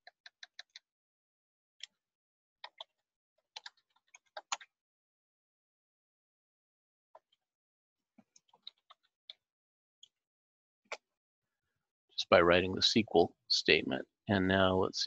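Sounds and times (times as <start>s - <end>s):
keystrokes on computer keyboard: 0.0s - 0.9s, 2.6s - 4.7s, 8.4s - 9.1s.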